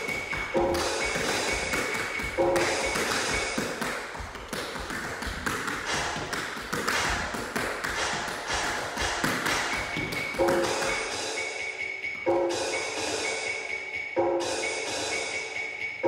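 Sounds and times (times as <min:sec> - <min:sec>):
tap shoes on hard floor: 0:00.0 - 0:11.0.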